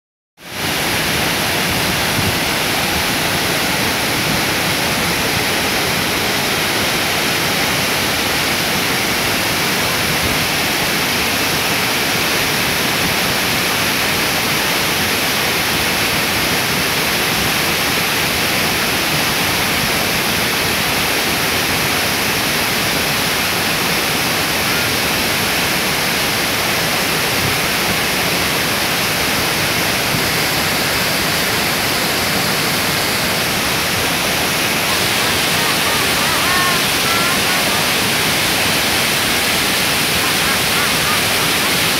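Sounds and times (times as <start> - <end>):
waterfall rushing: 0.4 - 41.9.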